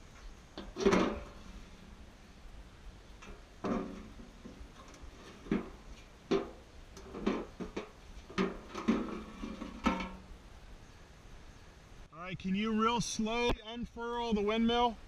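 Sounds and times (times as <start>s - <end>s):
windmill metal clanks: 0.5s - 2.1s, 3.2s - 10.4s.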